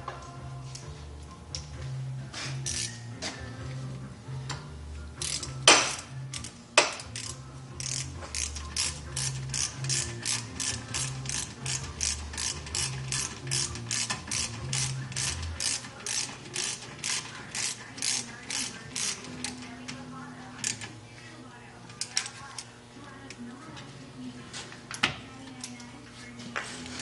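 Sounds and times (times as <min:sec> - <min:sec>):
ratchet wrench clicking: 0:02.6 - 0:03.0, 0:05.2 - 0:19.7, 0:20.6 - 0:20.9.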